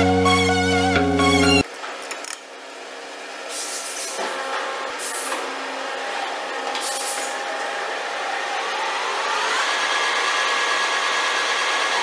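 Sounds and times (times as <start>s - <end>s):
lathe motor whirring: 4.4s - 12.0s.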